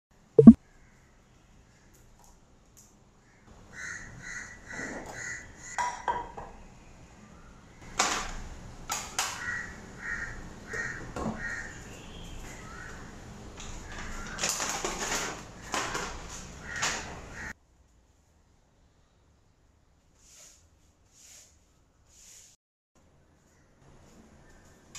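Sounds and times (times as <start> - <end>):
crow cawing: 9.4 - 11.8.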